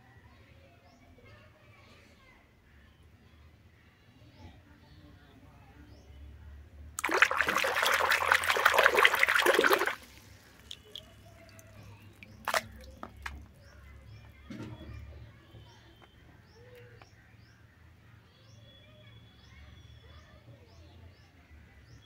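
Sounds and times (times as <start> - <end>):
water splashing and sloshing: 7.0 - 13.6
water drips: 7.0 - 13.7.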